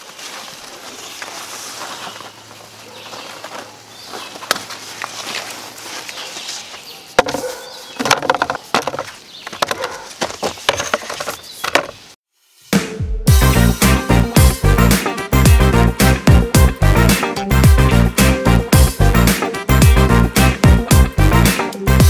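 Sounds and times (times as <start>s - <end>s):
squash leaves and vines rustling: 0.0s - 7.9s.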